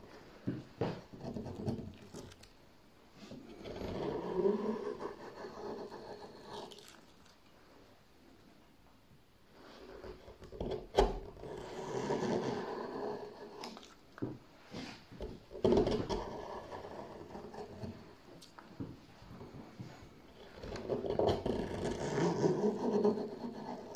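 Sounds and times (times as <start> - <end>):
gouge scraping through wood: 3.2 - 6.8, 9.6 - 13.8, 14.7 - 18.4, 20.4 - 23.9.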